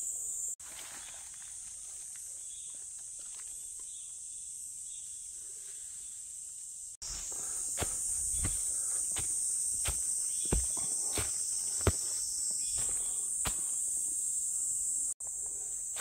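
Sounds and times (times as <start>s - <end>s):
high-pitched insect chorus: 0.0s - 16.0s
footsteps on dirt trail: 7.0s - 14.0s.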